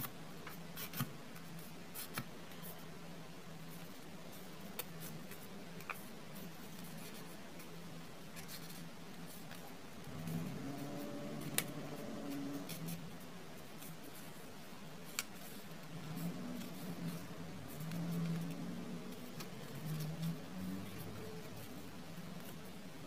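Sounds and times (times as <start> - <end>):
low steady hum: 0.0 - 23.0
paper rustling and crinkling: 3.6 - 22.9
faint drone: 10.0 - 13.3.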